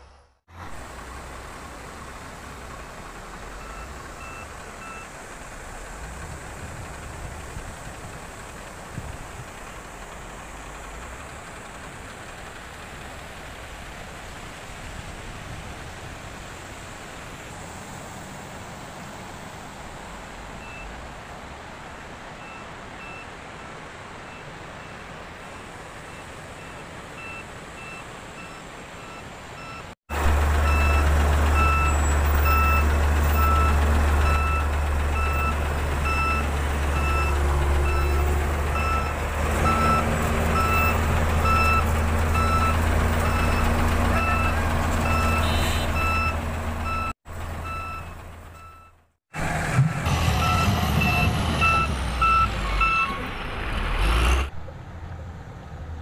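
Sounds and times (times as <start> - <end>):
truck engine drone: 0.0 - 56.0
truck reversing alarm beeping: 3.6 - 5.2, 26.2 - 49.1, 50.1 - 53.2.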